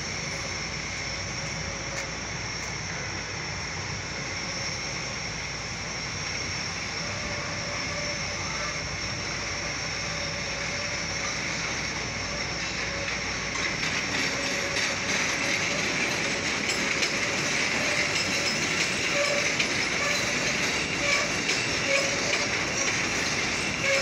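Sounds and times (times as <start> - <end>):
train rumbling: 0.0 - 24.0
train whine: 0.0 - 24.0.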